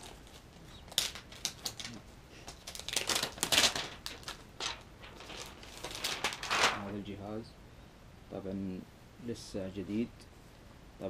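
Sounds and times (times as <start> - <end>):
plastic film crinkling: 0.0 - 7.0.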